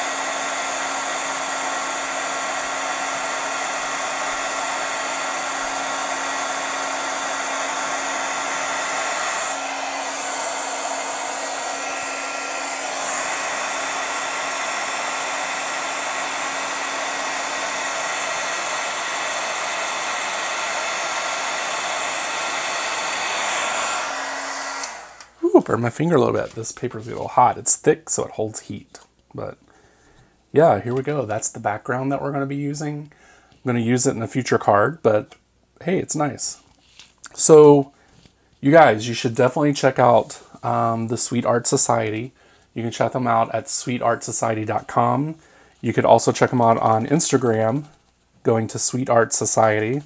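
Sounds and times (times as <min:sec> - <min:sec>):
heat gun blowing with a hum: 0:00.0 - 0:25.8.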